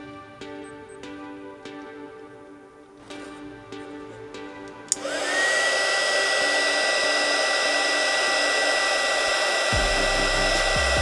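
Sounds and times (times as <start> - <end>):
heat gun switch click: 4.9 - 5.5
heat gun fan whine: 4.9 - 11.0.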